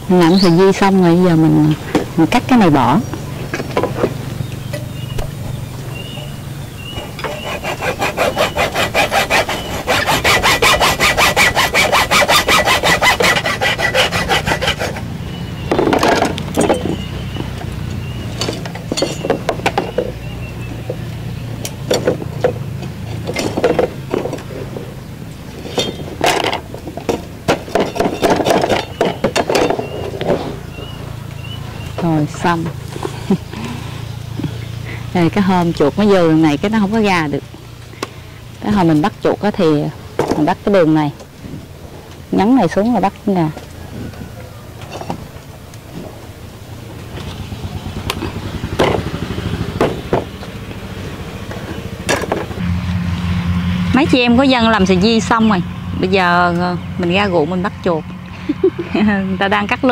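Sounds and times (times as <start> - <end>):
saw blade sawing back and forth: 6.4 - 15.1.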